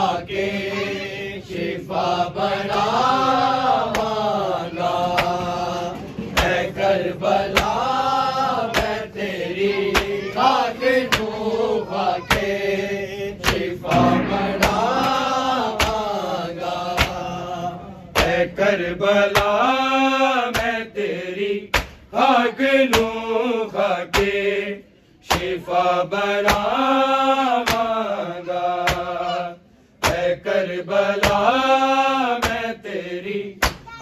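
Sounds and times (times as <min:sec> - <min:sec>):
voices chanting a lament: 0:00.0 - 0:34.0
chest-beating slaps: 0:07.5 - 0:07.9, 0:08.7 - 0:09.0, 0:09.8 - 0:10.3, 0:11.0 - 0:11.5, 0:13.4 - 0:16.2, 0:17.0 - 0:17.2, 0:18.1 - 0:18.4, 0:21.7 - 0:22.0, 0:24.1 - 0:24.4, 0:33.6 - 0:33.9.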